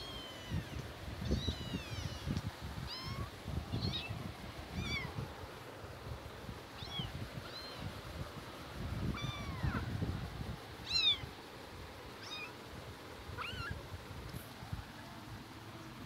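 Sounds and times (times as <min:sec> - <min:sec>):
kitten mewing: 0:00.1 - 0:04.2, 0:09.2 - 0:09.9.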